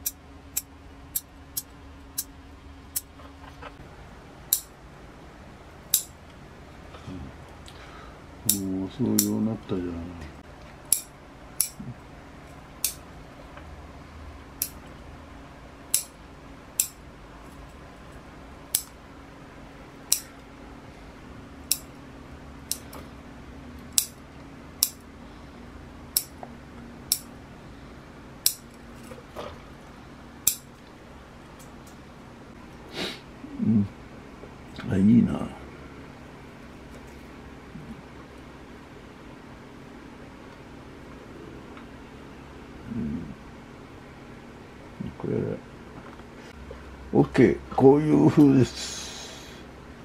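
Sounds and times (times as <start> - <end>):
scissors snipping shoots: 8.5 - 9.4, 22.7 - 23.0.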